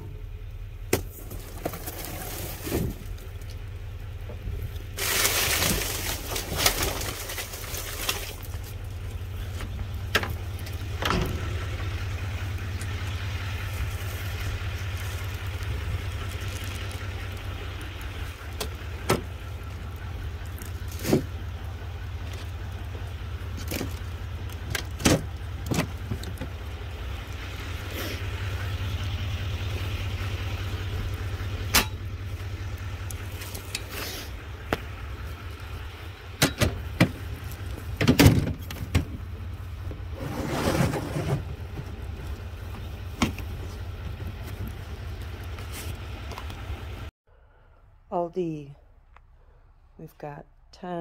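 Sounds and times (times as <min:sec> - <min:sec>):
plastic totes knocking and bumping: 0:36.4 - 0:39.3.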